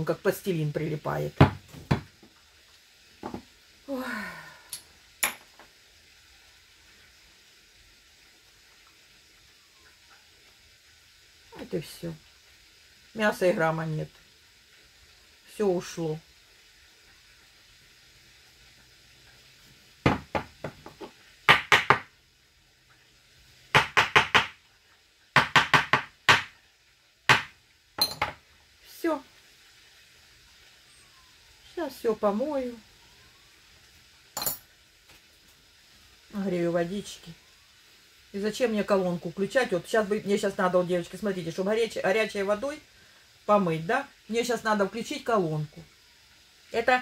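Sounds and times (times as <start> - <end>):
faint steady hiss: 0.0 - 47.0
utensils knocking on hard surface: 28.0 - 28.4.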